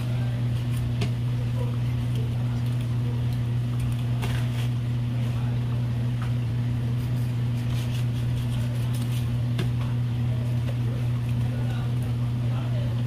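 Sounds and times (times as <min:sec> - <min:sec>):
low mechanical hum: 0:00.0 - 0:13.0
knife scraping fish: 0:06.9 - 0:09.4.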